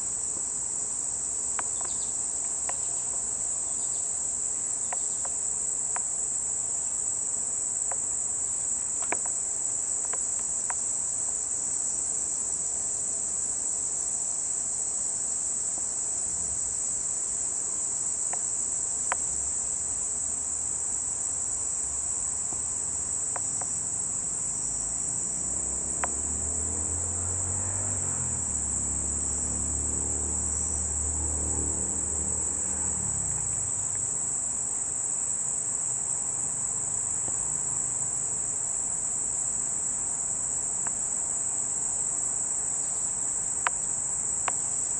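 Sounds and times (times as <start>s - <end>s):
insects chorus: 0.0s - 44.9s.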